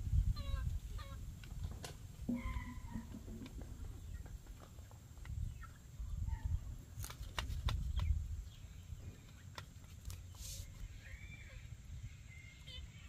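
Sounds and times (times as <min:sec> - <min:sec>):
wind rumble on microphone: 0:00.0 - 0:04.5, 0:05.2 - 0:09.2.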